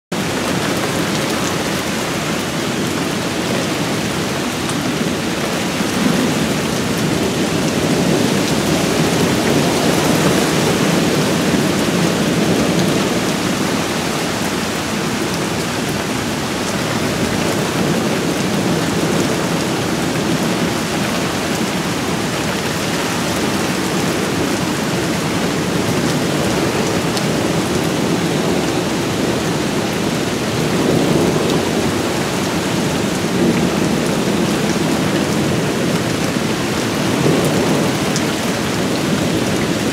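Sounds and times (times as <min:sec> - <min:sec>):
heavy rain: 0:00.1 - 0:39.9
thunder rumbling: 0:00.2 - 0:39.9.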